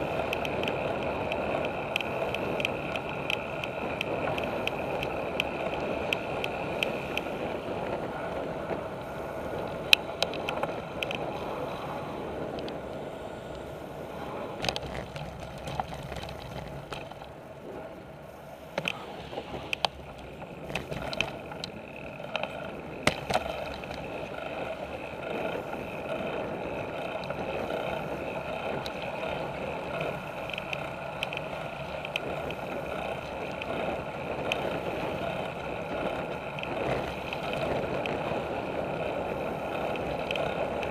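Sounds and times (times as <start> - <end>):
bicycle tyre and wind noise: 0.0 - 40.9
bike knocking over bumps: 22.4 - 24.4.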